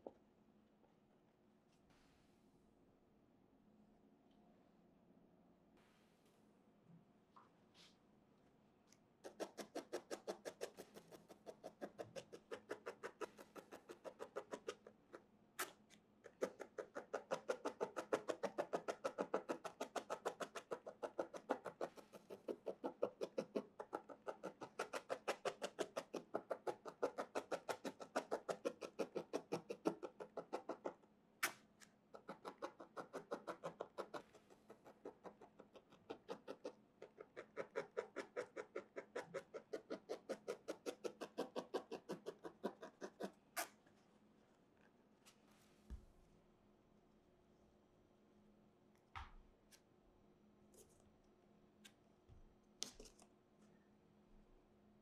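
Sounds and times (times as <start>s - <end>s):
felting needle poking: 9.2s - 43.8s.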